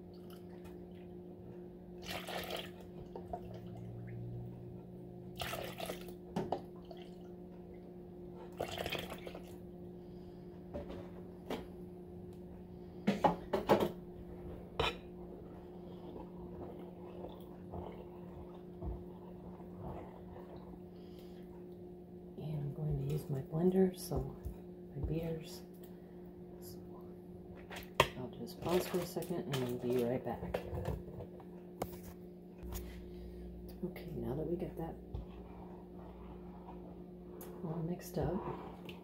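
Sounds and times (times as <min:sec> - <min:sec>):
steady low hum: 0:00.0 - 0:39.0
milk pouring: 0:02.0 - 0:03.8, 0:05.3 - 0:06.2, 0:08.5 - 0:09.6.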